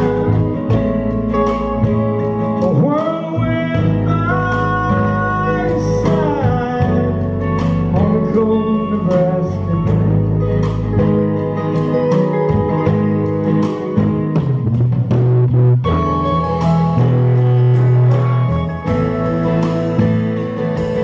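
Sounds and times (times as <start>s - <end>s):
live country band playing: 0.0s - 21.0s
man singing: 2.4s - 10.8s.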